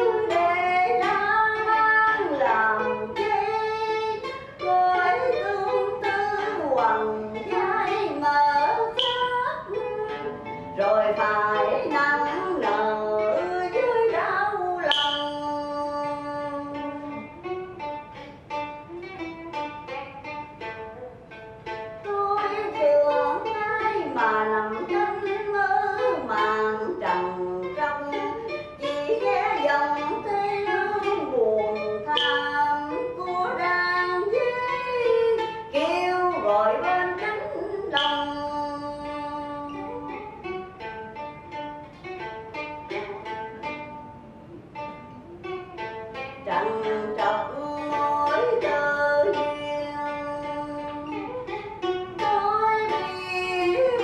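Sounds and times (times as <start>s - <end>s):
woman singing sliding phrases: 0.0s - 17.3s, 22.1s - 40.4s, 46.4s - 51.4s, 52.2s - 54.0s
plucked lute notes: 0.0s - 54.0s.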